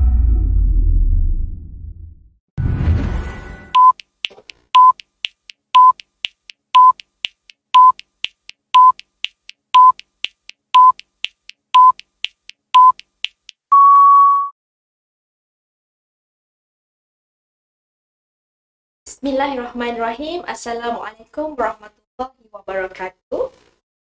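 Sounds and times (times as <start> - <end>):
short electronic beeps: 3.8 - 4.1, 4.8 - 5.1, 5.8 - 6.1, 6.8 - 7.1, 7.8 - 8.0, 8.8 - 9.1, 9.8 - 10.1, 10.8 - 11.1, 11.8 - 12.0, 12.8 - 13.1, 13.7 - 14.5.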